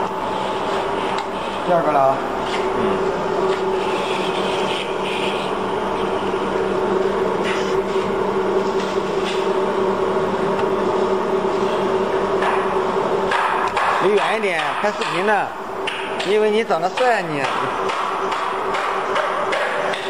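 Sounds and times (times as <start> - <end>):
machine motor hum: 0.0 - 20.0.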